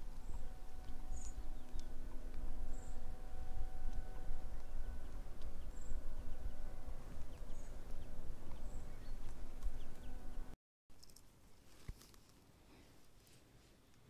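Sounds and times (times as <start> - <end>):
faint high bird chirps: 0.0 - 10.5
wind rumble on microphone: 0.0 - 10.5.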